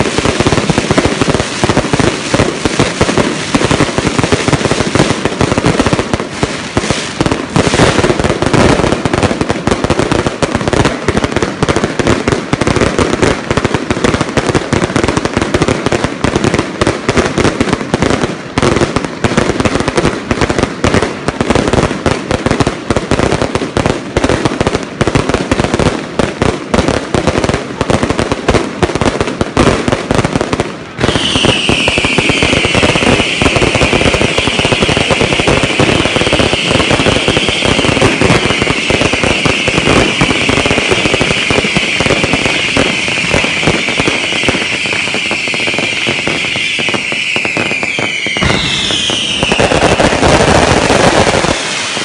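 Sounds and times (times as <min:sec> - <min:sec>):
fireworks bangs and crackles: 0:00.0 - 0:52.0
loud high-pitched hiss: 0:46.5 - 0:52.0.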